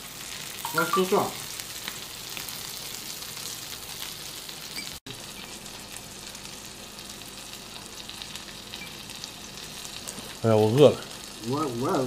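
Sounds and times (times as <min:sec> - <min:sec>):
meat sizzling on a grill plate: 0:00.0 - 0:12.0.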